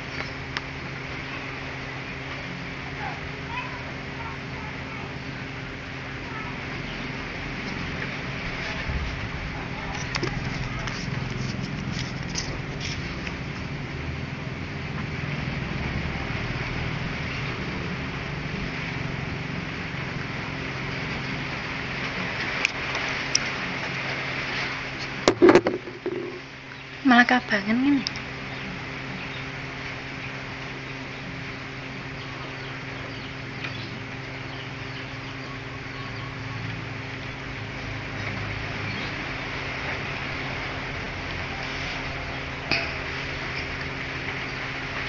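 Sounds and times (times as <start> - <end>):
steady low rumble: 0.0 - 22.4
low background hum: 0.0 - 45.0
faint bird chirps: 32.1 - 37.3.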